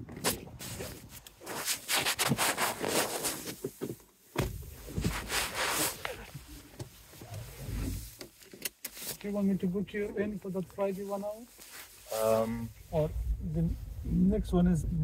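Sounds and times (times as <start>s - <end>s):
fabric rubbing on microphone: 0.2s - 3.8s, 4.7s - 8.2s, 8.9s - 14.6s
dull thump: 3.8s - 5.3s.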